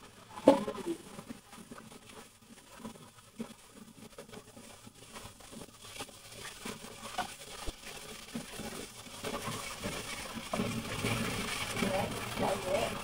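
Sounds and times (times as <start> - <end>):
meat sizzling: 0.0 - 13.0.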